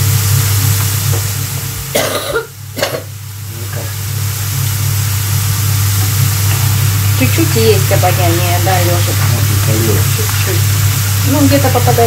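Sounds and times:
steady low hum: 0.0 - 12.0
person coughing: 1.9 - 3.1.

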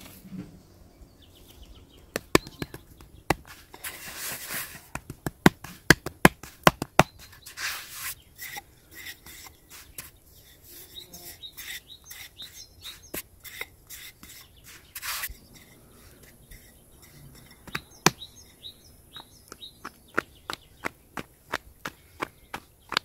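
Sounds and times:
small birds chirping: 0.0 - 23.0
hands slapping bread dough: 2.1 - 3.8, 4.8 - 7.3, 19.5 - 23.0
rolling pin tapping on board: 4.9 - 7.1.

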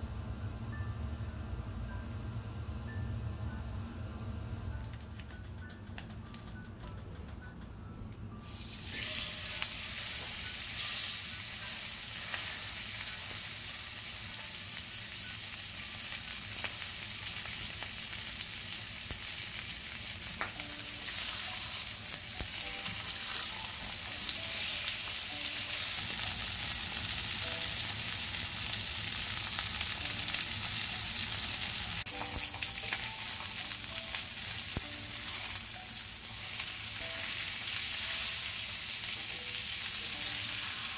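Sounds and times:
steaks sizzling in hot oil: 8.4 - 40.9.

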